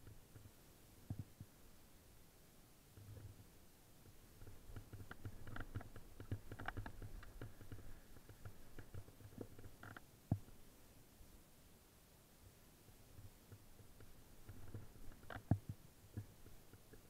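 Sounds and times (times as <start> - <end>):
bike clicks and rattles: 4.4 - 10.0.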